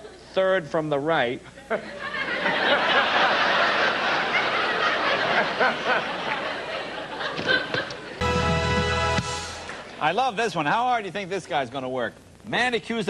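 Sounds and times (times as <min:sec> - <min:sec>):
audience laughing: 0:01.6 - 0:08.3.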